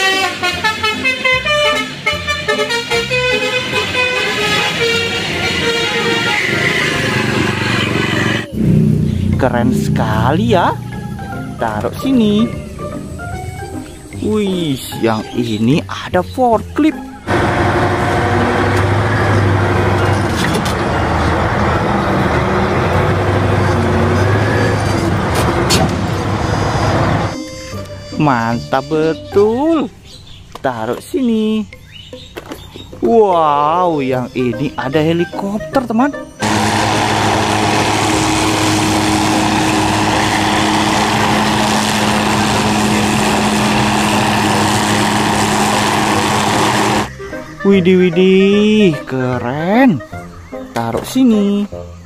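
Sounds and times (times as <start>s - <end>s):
diesel engine running: 0.1s - 14.1s, 17.2s - 27.4s, 36.4s - 47.2s
helicopter hovering: 3.3s - 9.4s, 17.3s - 27.4s, 36.4s - 47.2s.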